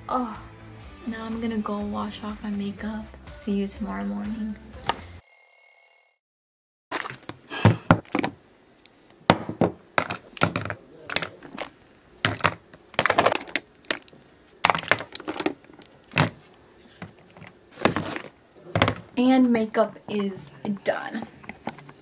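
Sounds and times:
makeup items clacking on tabletop: 9.3s - 16.4s.

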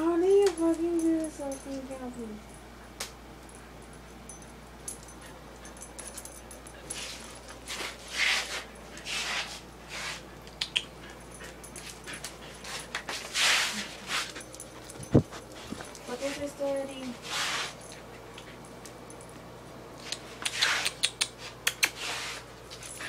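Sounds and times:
dog breathing and sniffing: 4.9s - 18.7s, 20.0s - 23.0s
claws clicking on tile floor: 10.4s - 13.3s, 20.0s - 23.0s.

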